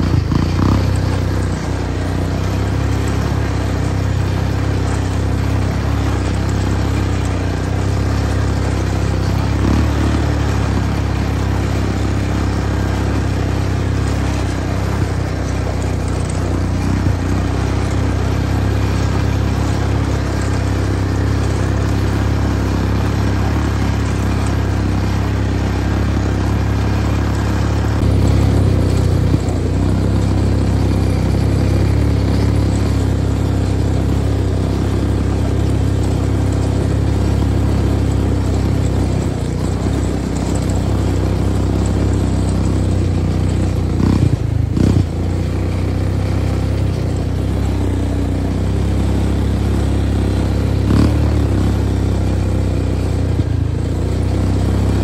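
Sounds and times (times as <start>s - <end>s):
vehicle engine droning: 0.0s - 55.0s.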